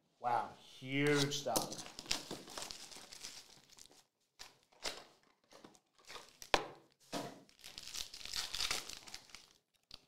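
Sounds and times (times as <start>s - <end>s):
foil wrapper crinkling: 1.7s - 5.0s, 7.4s - 10.0s.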